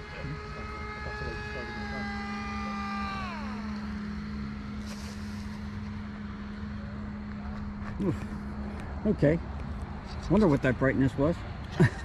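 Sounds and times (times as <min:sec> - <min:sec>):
model airplane motor whine: 0:00.0 - 0:06.6.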